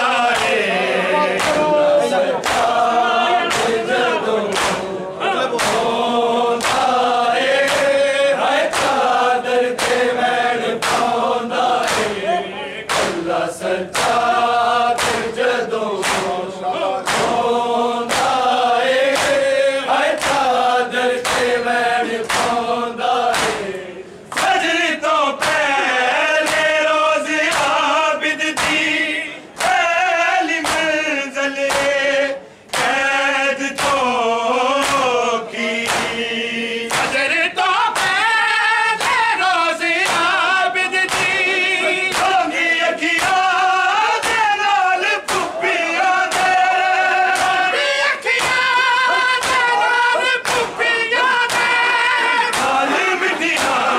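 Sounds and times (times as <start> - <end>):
men singing lament in chorus: 0.0 - 53.9
hands slapping on chests: 0.2 - 0.7, 1.4 - 2.9, 3.5 - 4.9, 5.5 - 8.0, 8.6 - 12.2, 12.9 - 16.4, 17.0 - 24.7, 25.4 - 25.7, 26.4 - 26.9, 27.5 - 27.9, 28.5 - 29.0, 29.6 - 29.9, 30.5 - 31.0, 31.6 - 32.0, 32.7 - 34.2, 34.8 - 35.2, 35.8 - 36.3, 36.9 - 37.3, 37.9 - 38.2, 39.0 - 39.3, 40.0 - 40.4, 41.0 - 43.6, 44.2 - 44.6, 45.2 - 50.8, 51.4 - 51.8, 52.5 - 53.9.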